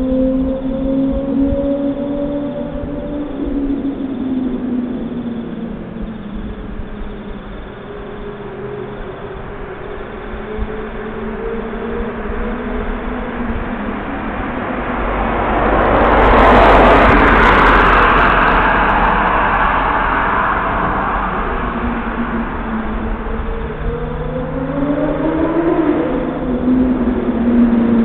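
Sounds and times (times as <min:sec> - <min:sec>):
vehicle passing close by: 0:12.3 - 0:28.0.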